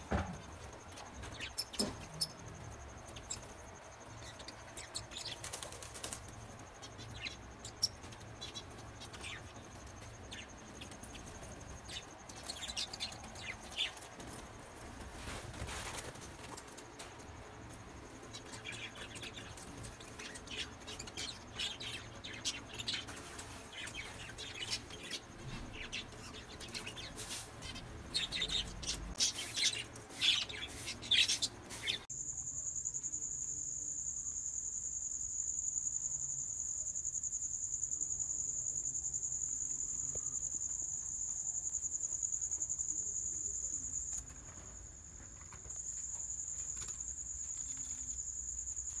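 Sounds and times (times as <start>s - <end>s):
small birds chirping: 0.0s - 32.1s
high-pitched insect trill: 0.1s - 49.0s.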